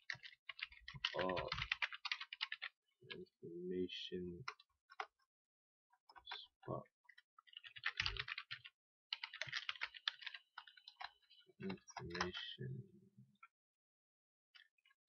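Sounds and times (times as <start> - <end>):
keyboard typing: 0.0 - 2.7, 7.4 - 12.4
person speaking: 1.0 - 1.6, 11.6 - 12.9.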